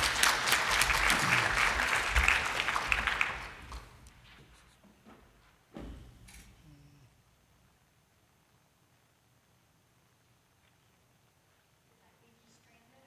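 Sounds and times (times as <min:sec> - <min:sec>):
audience applauding: 0:00.0 - 0:04.1
thump: 0:05.1 - 0:06.2.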